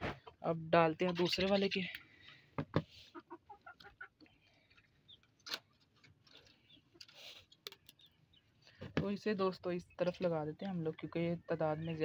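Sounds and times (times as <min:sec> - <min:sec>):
chickens clucking softly: 0:00.0 - 0:02.0, 0:03.0 - 0:05.6.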